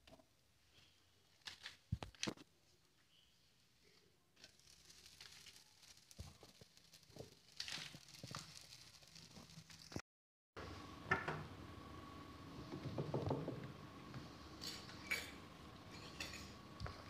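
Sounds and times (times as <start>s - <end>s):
kitchen taps and rustles: 12.7s - 13.7s.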